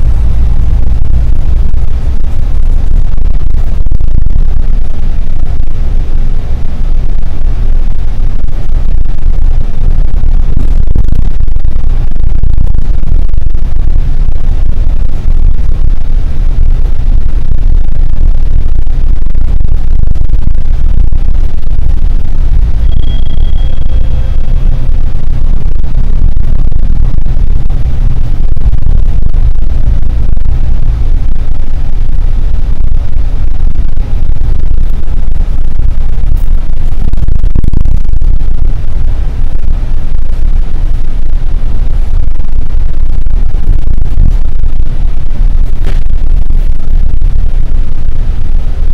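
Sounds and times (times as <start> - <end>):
bus interior rumble: 0.0 - 48.9
brief high tone: 22.8 - 24.3.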